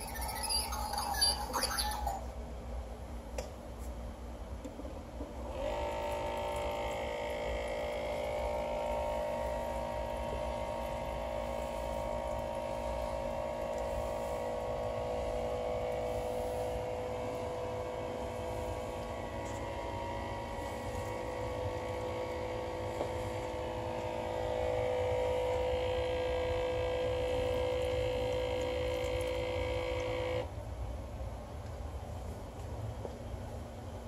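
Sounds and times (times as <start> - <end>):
electric pump humming: 4.4 - 30.5.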